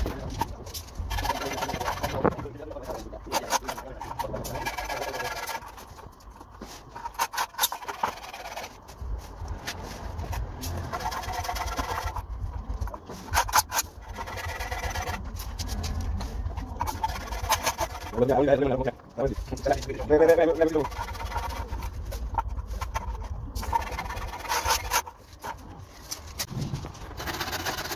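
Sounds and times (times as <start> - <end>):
low steady rumble: 0.0 - 27.9
metal straightedge scraping and knocking: 12.8 - 16.0.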